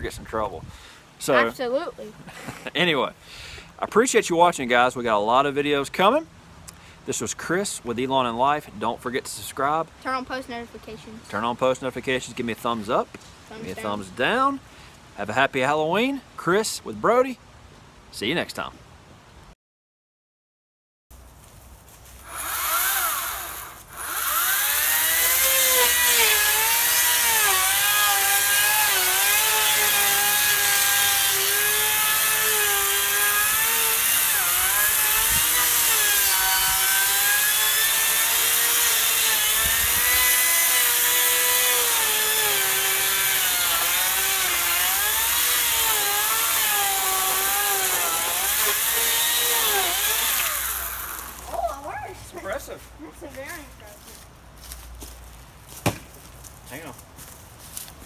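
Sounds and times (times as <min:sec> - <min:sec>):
cordless chainsaw cutting a log: 0:22.2 - 0:51.5.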